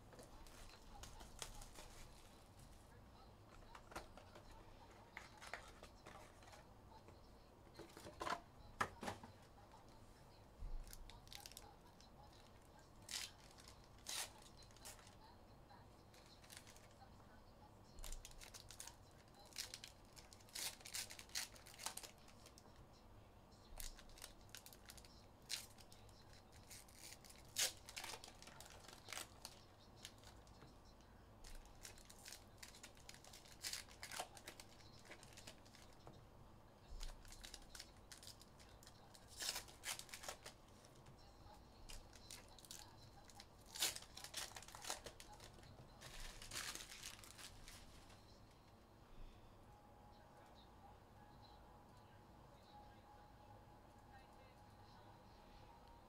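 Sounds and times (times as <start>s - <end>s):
packaging tearing and crinkling: 19.5s - 22.2s, 26.6s - 30.3s, 31.6s - 35.9s, 39.2s - 40.5s, 43.6s - 47.8s.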